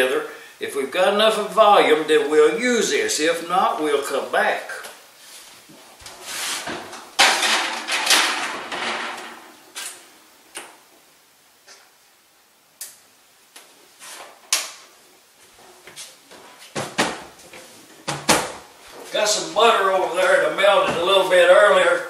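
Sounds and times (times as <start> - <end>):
scraping and rustling: 5.2 - 10.1.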